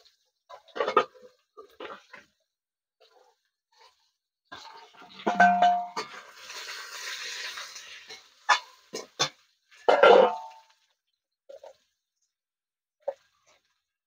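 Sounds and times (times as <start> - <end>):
vegetables frying in oil: 0.0 - 12.2, 13.0 - 14.0
metal spatula scraping wok: 3.1 - 10.8.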